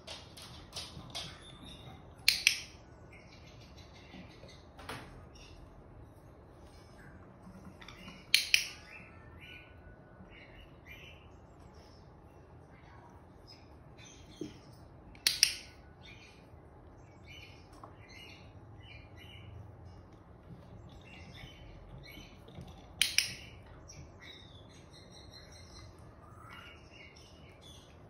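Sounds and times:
parrots chirping: 0:07.6 - 0:11.3, 0:20.8 - 0:28.0.

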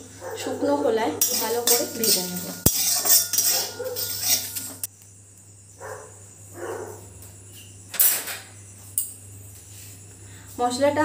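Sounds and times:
metal spatula scraping a pan: 0:01.2 - 0:04.9.

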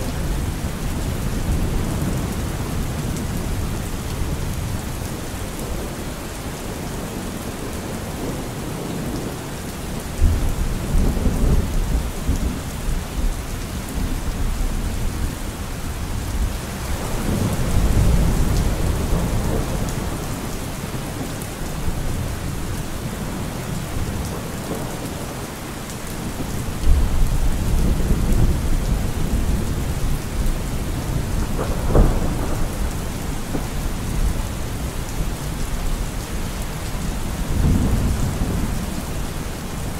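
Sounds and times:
steady rain: 0:00.0 - 0:39.9
thunder rolling: 0:26.8 - 0:34.4
thunder crack: 0:31.5 - 0:33.6.

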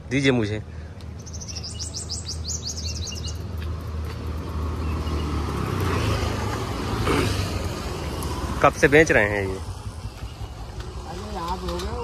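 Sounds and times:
low traffic rumble: 0:00.0 - 0:12.0
small bird chirping: 0:01.0 - 0:03.7
motorbike approaching: 0:02.0 - 0:12.0.

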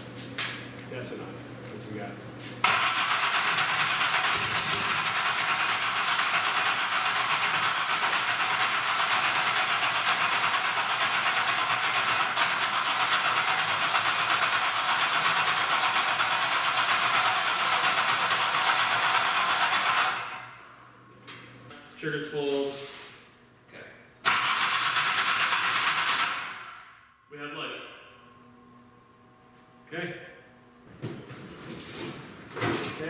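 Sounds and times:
engine starter cranking: 0:02.6 - 0:20.4, 0:24.3 - 0:26.7.

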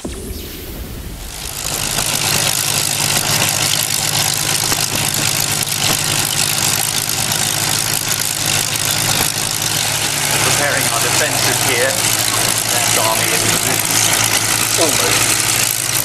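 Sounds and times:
propeller aircraft engine idling: 0:00.0 - 0:16.0.

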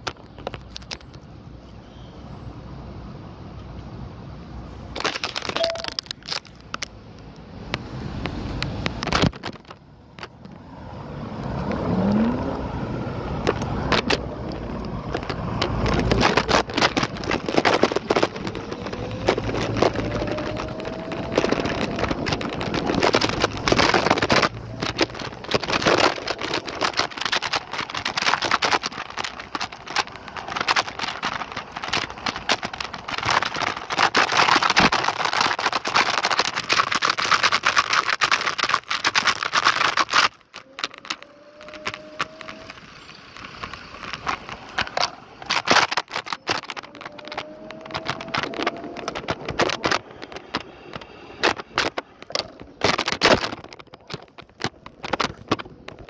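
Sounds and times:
road noise: 0:00.0 - 0:56.0
electric scooter rattling: 0:08.0 - 0:56.0.

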